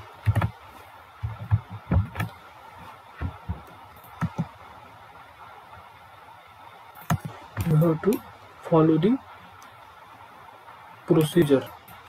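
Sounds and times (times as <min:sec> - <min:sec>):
computer mouse clicking: 0:00.2 - 0:00.6, 0:04.1 - 0:04.5, 0:07.0 - 0:07.8.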